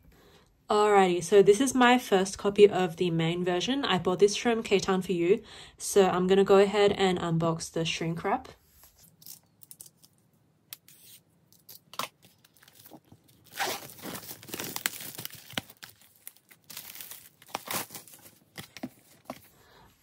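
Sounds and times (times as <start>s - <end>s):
plastic wrap crinkling and tearing: 9.0s - 10.2s, 10.8s - 19.5s.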